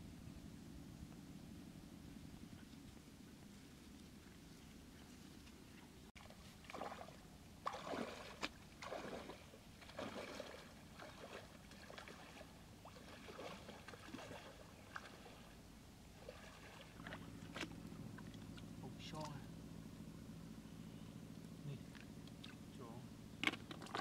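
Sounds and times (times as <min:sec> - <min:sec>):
footsteps wading through water: 0:04.1 - 0:18.8.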